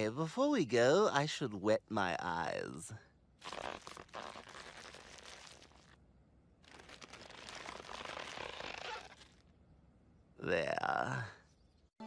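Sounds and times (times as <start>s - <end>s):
wet crinkly noise: 3.4s - 6.0s, 6.6s - 9.4s.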